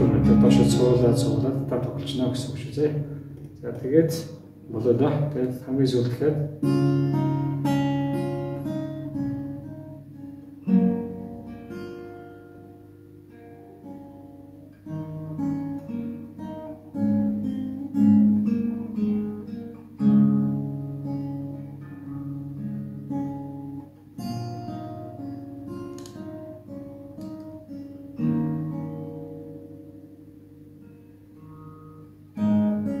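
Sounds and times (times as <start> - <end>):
acoustic guitar chords: 0.0 - 33.0.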